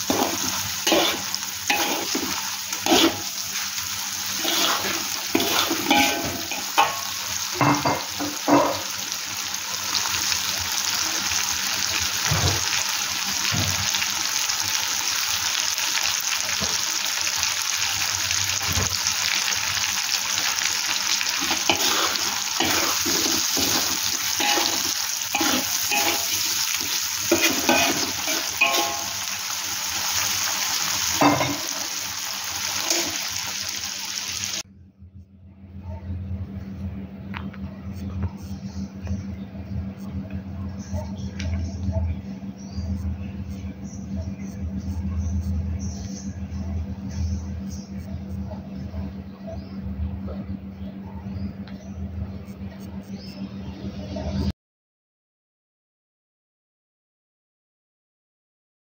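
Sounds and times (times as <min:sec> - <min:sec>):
metal spatula scraping a wok: 0:00.0 - 0:03.6, 0:04.3 - 0:07.2, 0:21.4 - 0:29.4
food sizzling in a wok: 0:00.0 - 0:34.6.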